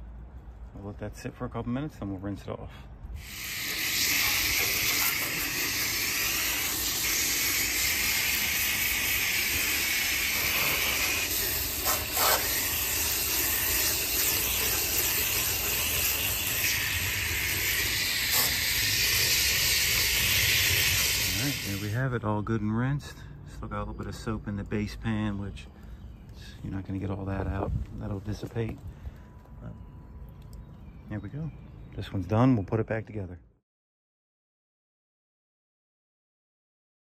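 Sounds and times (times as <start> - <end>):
hose spray hissing: 3.2 - 22.0.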